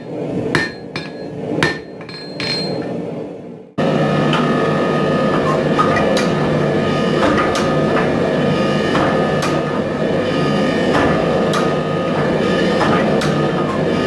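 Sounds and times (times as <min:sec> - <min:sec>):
power hammer pounding: 0:00.5 - 0:02.1, 0:04.3 - 0:14.0.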